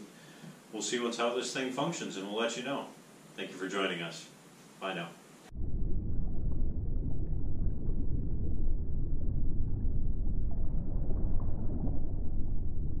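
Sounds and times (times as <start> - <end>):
faint bubbling blips: 5.5 - 13.0
underwater low rumble: 5.5 - 13.0.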